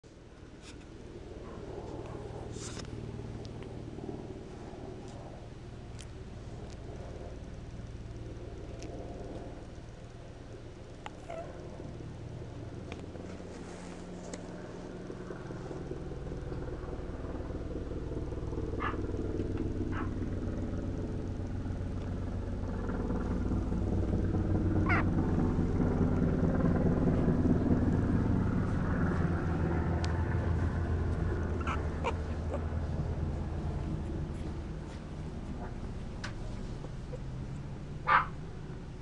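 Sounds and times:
low steady rumble: 0:00.0 - 0:39.0
puppies squeaking: 0:24.9 - 0:25.1, 0:31.5 - 0:33.1.

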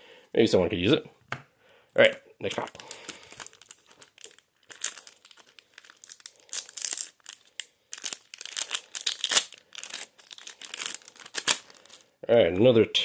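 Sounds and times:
foil pack tearing and crinkling: 0:02.5 - 0:12.1.

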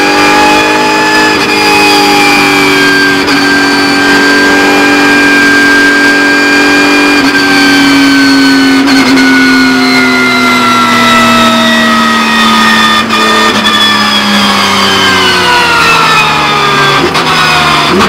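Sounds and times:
race car engine running loud: 0:00.0 - 0:18.0.

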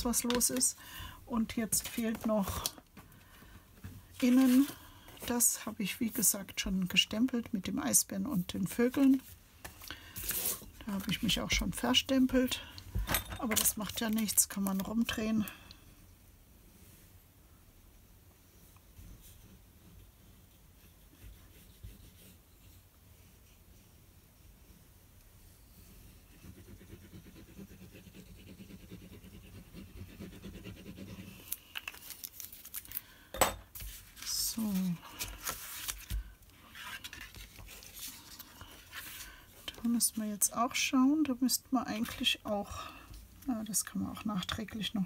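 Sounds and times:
paper and card sliding: 0:04.3 - 0:04.8, 0:33.8 - 0:39.3.

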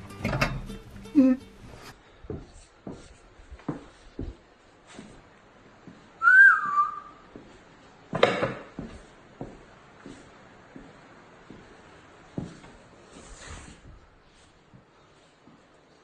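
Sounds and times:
footsteps on bare floor: 0:01.6 - 0:16.0
short whistled note: 0:06.2 - 0:07.2.

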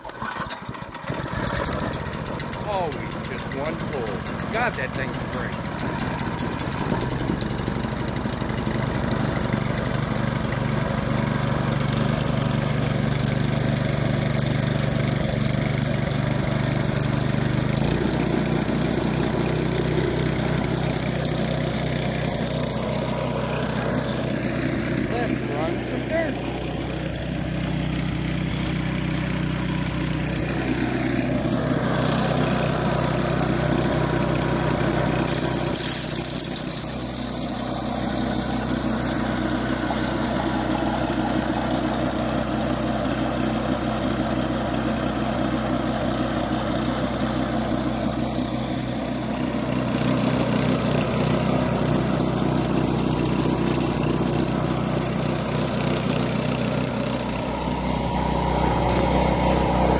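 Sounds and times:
small gas engine running: 0:00.0 - 0:59.9.

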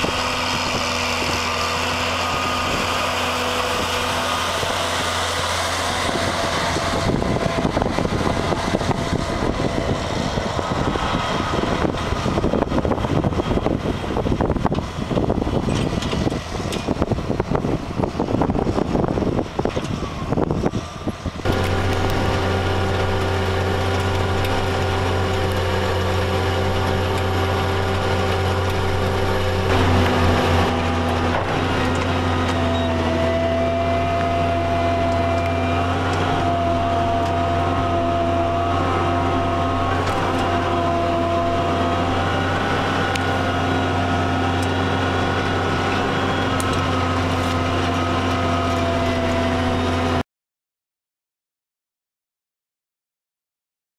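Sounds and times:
tractor engine drone: 0:00.0 - 0:50.2.

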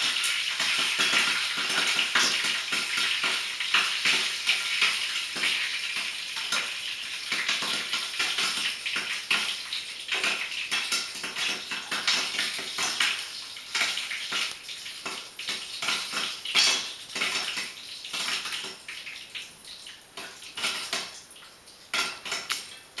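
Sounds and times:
popcorn popping in a pot: 0:00.0 - 0:19.1, 0:20.2 - 0:21.2, 0:21.9 - 0:23.0.

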